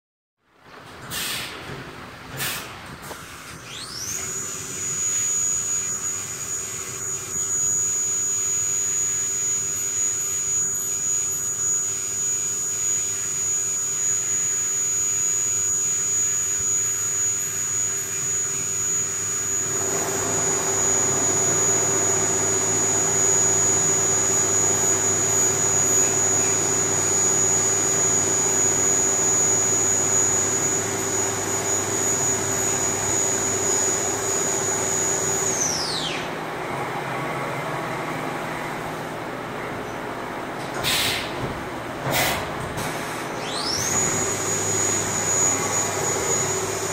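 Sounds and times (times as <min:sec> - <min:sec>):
milling machine spindle whine: 0:03.3 - 0:39.8, 0:43.3 - 0:46.9.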